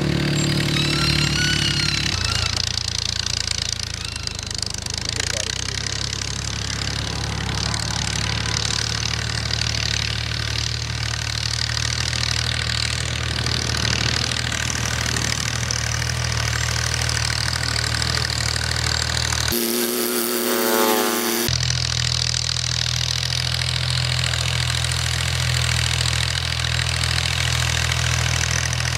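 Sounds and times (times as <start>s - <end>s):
tractor diesel engine droning: 0.0s - 28.9s
high-pitched humming tone: 19.5s - 21.6s.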